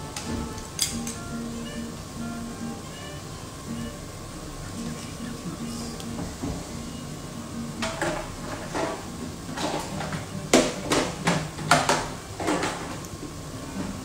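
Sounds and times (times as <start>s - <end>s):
kitchen utensils clattering: 0.0s - 1.3s, 7.8s - 14.0s
low steady hum: 0.0s - 14.0s.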